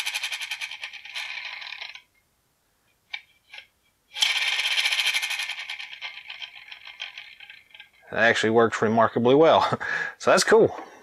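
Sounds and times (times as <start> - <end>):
toy wheel ratcheting whir: 0.0 - 2.1, 3.1 - 8.1.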